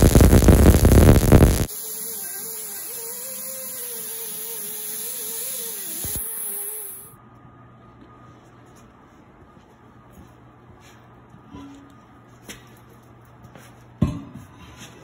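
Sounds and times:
welder arc crackling: 0:00.0 - 0:07.1
grinder whine on steel: 0:00.0 - 0:07.2.

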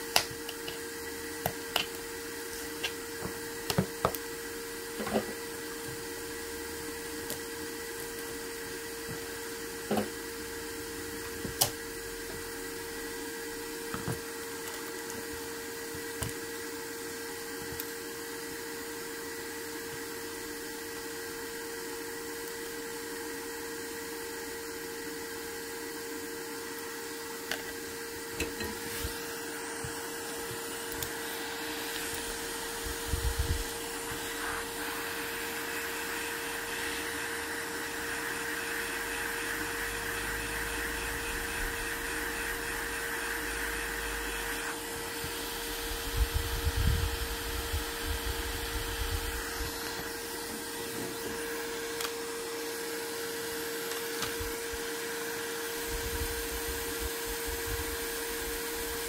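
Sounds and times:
small electric motor humming: 0:24.7 - 0:59.0
airy hiss: 0:31.4 - 0:44.7.

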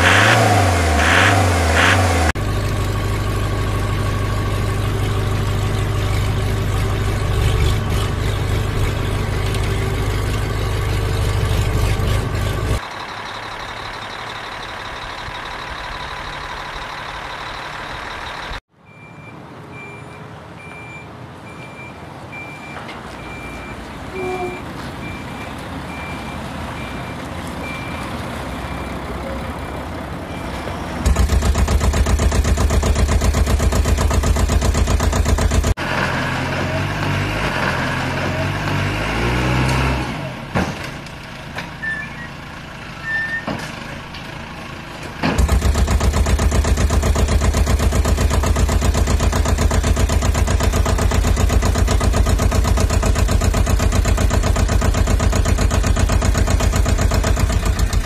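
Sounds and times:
engine revving unevenly: 0:00.0 - 0:13.0, 0:19.4 - 0:58.0
loud diesel engine pulsing: 0:00.0 - 0:58.0
truck engine running: 0:00.0 - 0:58.0
reversing beeper: 0:03.8 - 0:30.7, 0:41.8 - 0:42.4, 0:43.0 - 0:43.6.

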